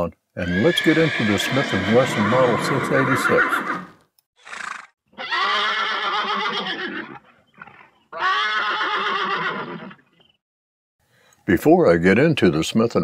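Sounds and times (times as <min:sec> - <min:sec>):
horse whinnying: 0:00.4 - 0:10.1.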